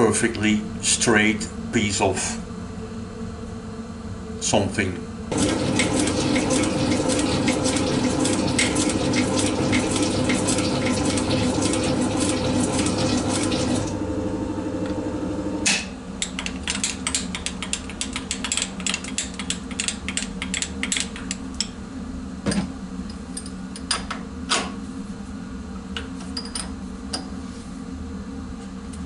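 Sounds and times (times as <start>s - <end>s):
steady low hum: 0.0s - 5.5s.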